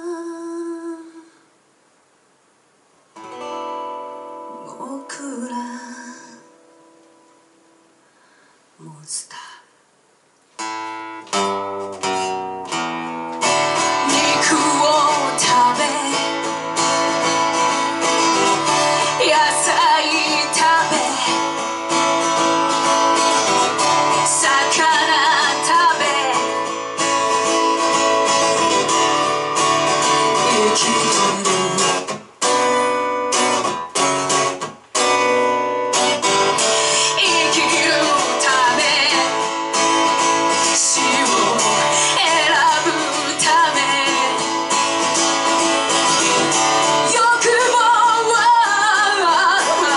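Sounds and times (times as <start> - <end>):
person singing: 0.0 - 1.4, 4.5 - 6.6, 13.7 - 17.0, 17.7 - 21.6, 23.2 - 26.8, 30.1 - 32.2, 36.3 - 45.0, 46.0 - 49.9
strummed guitar: 3.2 - 7.6, 10.6 - 49.9.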